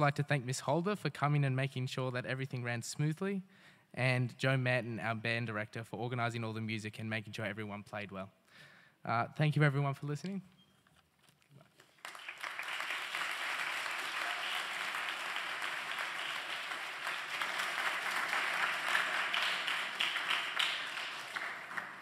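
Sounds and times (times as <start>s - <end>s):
audience applauding: 11.7s - 22.0s.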